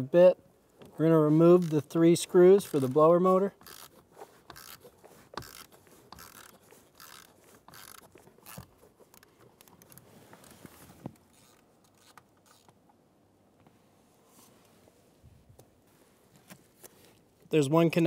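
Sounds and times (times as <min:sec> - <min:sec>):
hand ratchet clicking: 0:02.6 - 0:10.0.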